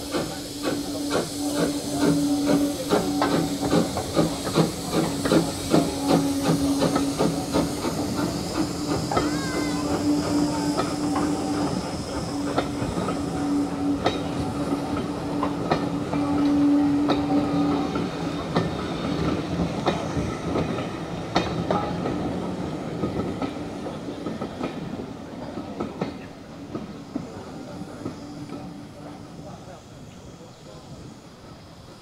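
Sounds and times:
steady steam hiss: 0.0s - 32.0s
steam locomotive chuffing: 0.0s - 32.0s.

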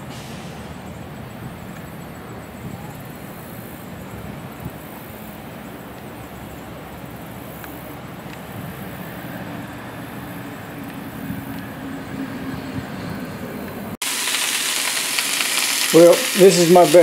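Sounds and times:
road traffic hum: 0.0s - 17.0s.

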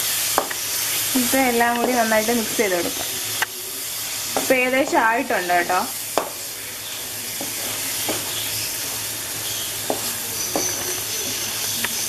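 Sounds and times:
food sizzling in a pan: 0.0s - 12.0s
spoon scraping a pan: 3.8s - 12.0s.

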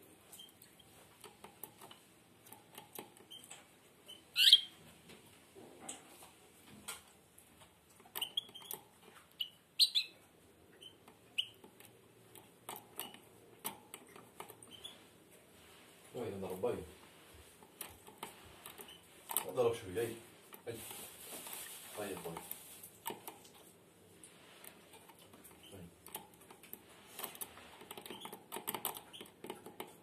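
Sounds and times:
goldfinch chirping: 4.1s - 4.7s, 9.4s - 10.2s.

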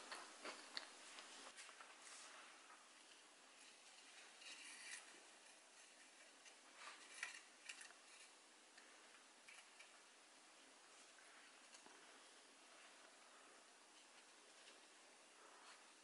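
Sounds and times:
meringue cookies clicking and rustling: 0.0s - 16.0s.

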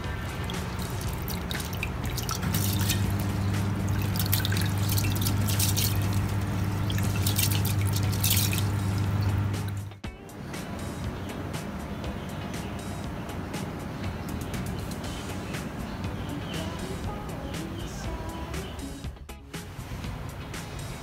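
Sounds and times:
hands washing rice in water: 0.0s - 9.9s
low hum: 0.0s - 10.0s
water splashing and dripping: 0.0s - 10.0s.

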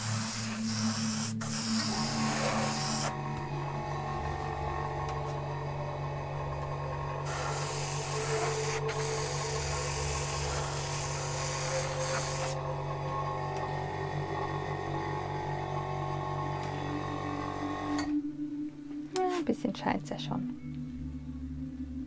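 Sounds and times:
airbrush spraying hiss: 0.0s - 3.1s, 7.3s - 12.6s
steady low hum: 0.0s - 22.0s.

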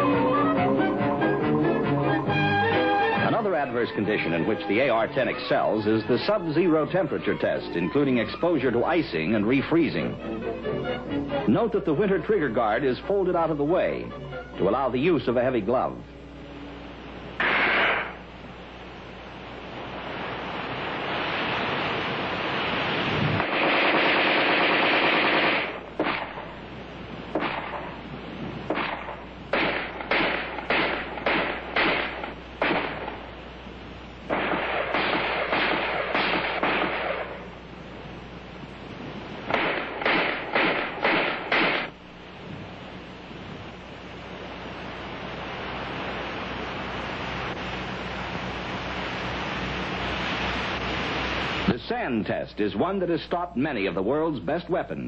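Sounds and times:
steady hiss: 0.0s - 55.0s
rifle automatic bursts: 17.4s - 18.2s, 23.4s - 26.5s, 28.7s - 33.2s, 34.3s - 37.5s, 39.5s - 42.0s
rifle single shots: 17.4s - 18.2s, 23.4s - 26.6s, 27.3s - 28.0s, 28.7s - 33.3s, 34.3s - 37.5s, 39.5s - 42.0s.

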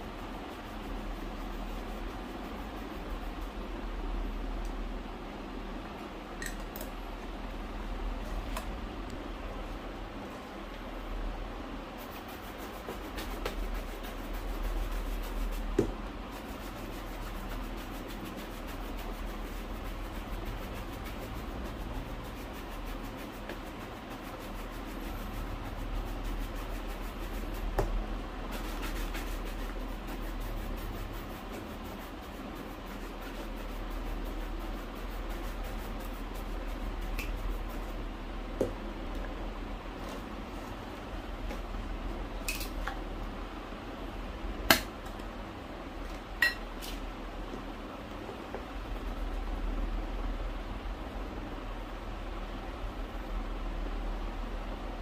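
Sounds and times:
brushing strokes on leather shoe: 0.0s - 3.8s, 11.8s - 38.1s.

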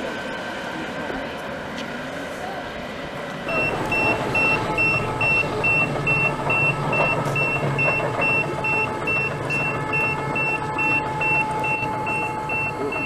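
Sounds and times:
low drive hum: 0.0s - 13.0s
high warning beep: 3.5s - 13.0s.

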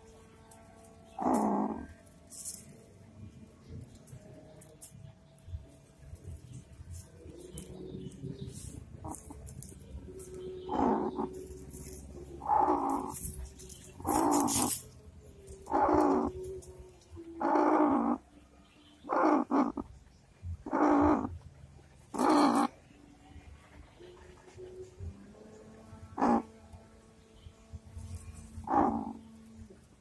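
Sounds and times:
hen low churr: 0.0s - 23.0s, 25.8s - 26.8s, 27.6s - 30.0s
hen growling harsh calls: 1.0s - 2.8s, 5.8s - 18.3s, 19.0s - 21.4s, 22.0s - 22.8s, 26.1s - 26.6s, 28.1s - 29.8s.

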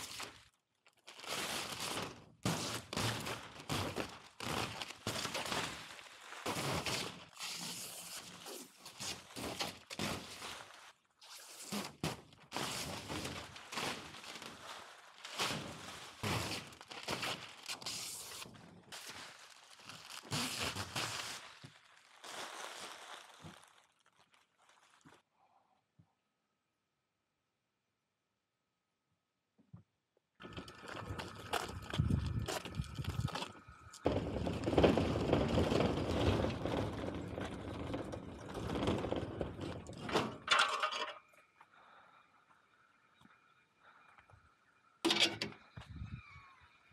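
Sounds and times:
plastic film rustling and crinkling: 0.0s - 25.3s, 30.4s - 40.4s
hand truck rolling on concrete: 30.4s - 41.4s
load rattling and clattering: 34.0s - 41.3s.

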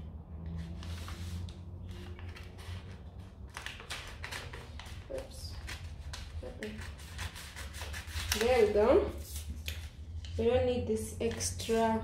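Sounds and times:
paper rustling: 0.6s - 10.4s
scissors snipping paper: 3.5s - 8.9s.

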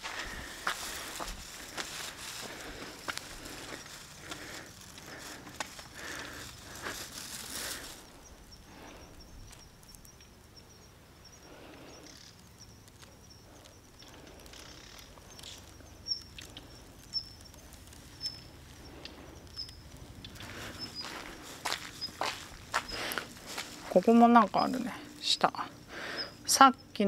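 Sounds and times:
high-pitched insect or bird trill: 8.2s - 18.6s, 19.5s - 21.2s.

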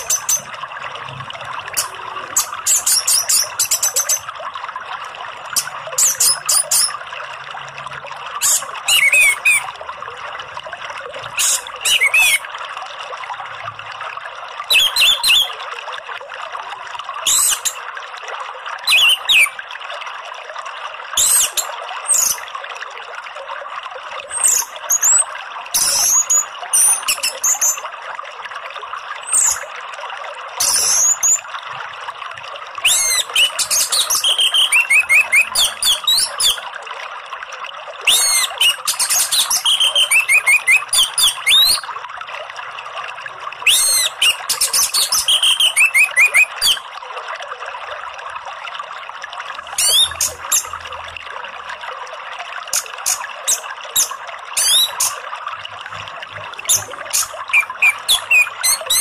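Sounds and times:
running water: 0.0s - 59.0s.

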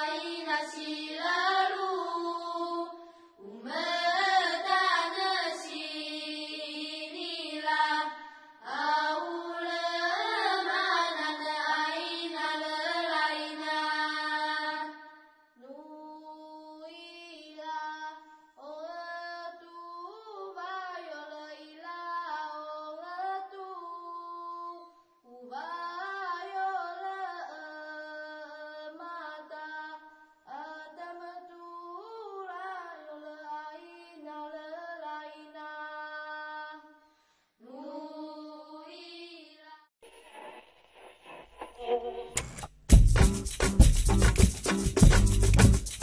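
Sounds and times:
high voice singing sliding phrases: 3.4s - 15.0s, 37.7s - 42.6s.

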